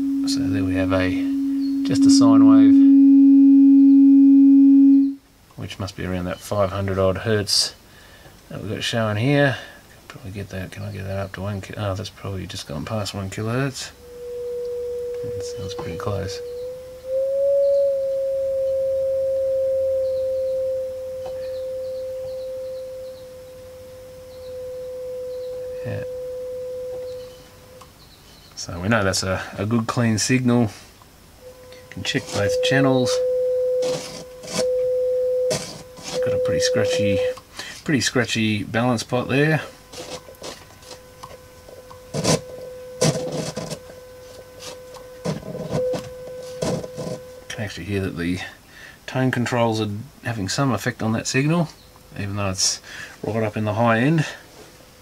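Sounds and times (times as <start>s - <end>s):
sine-wave test tone: 0.0s - 5.3s, 11.1s - 50.1s
scratchy crackling: 31.7s - 37.4s, 38.8s - 47.5s.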